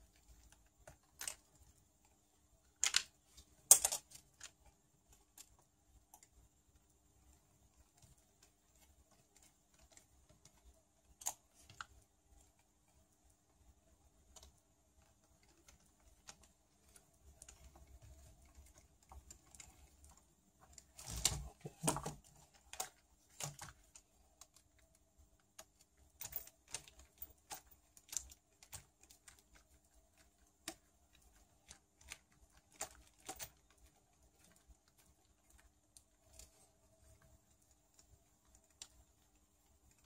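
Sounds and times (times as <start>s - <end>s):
plastic parts rattling: 2.7s - 6.3s, 14.2s - 40.0s.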